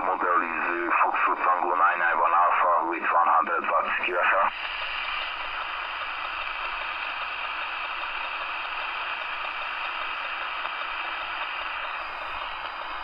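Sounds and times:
radio static hiss: 0.0 - 13.0.

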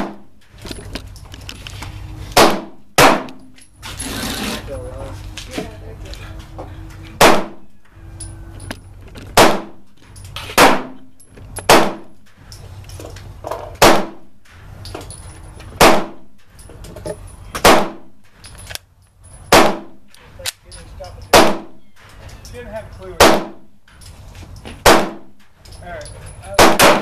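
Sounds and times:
pistol shots: 2.4 - 3.4, 7.2 - 7.6, 9.3 - 9.8, 10.5 - 11.1, 11.7 - 12.2, 13.8 - 14.3, 15.8 - 16.2, 17.6 - 18.1, 19.5 - 20.0, 21.3 - 21.8, 23.2 - 23.7, 24.8 - 25.4, 26.6 - 27.0.

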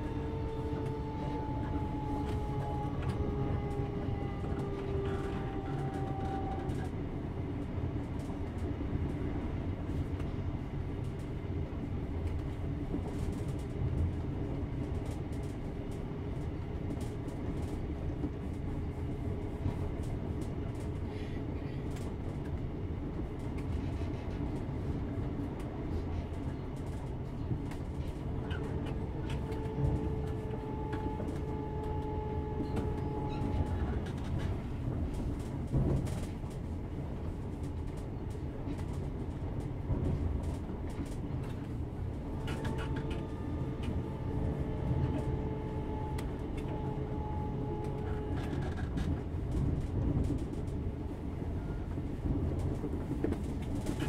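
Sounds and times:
train wheels rumbling on track: 0.0 - 54.0.

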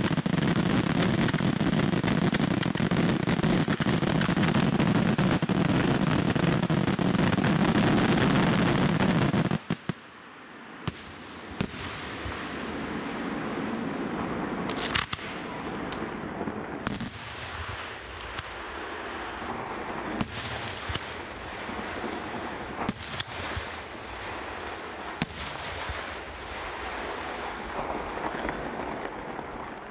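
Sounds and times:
firework shells bursting: 14.7 - 17.1.

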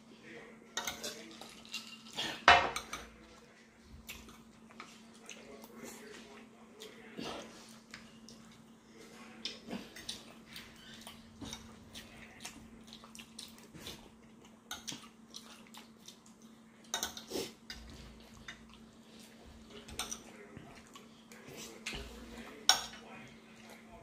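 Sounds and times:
utensils clinking on dishes: 0.7 - 3.2, 16.8 - 18.6
people chewing and smacking: 3.0 - 24.0.

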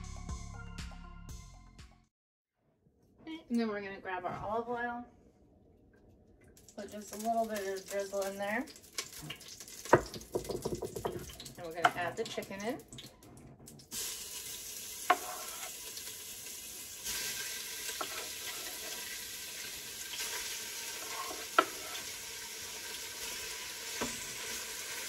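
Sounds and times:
chicken sizzling in hot oil: 6.6 - 10.3, 13.8 - 25.0
wooden spoon knocks: 10.0 - 11.3.

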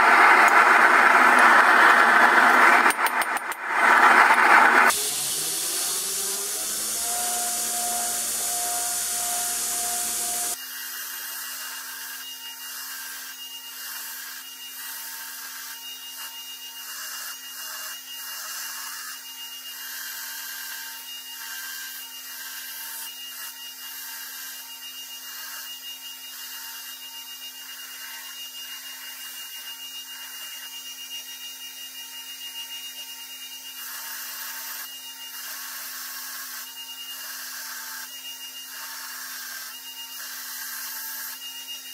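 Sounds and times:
grinding steel on belt: 0.0 - 10.6
belt grinder motor spinning: 0.0 - 41.9.

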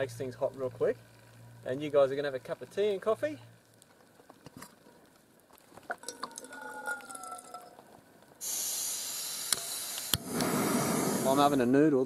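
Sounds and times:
gas hissing from burner: 8.4 - 11.8.

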